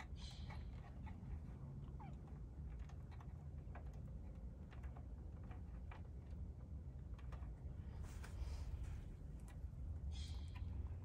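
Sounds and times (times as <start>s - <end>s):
light clicks and ticks: 0.0s - 9.9s
steady low rumble: 7.6s - 11.0s.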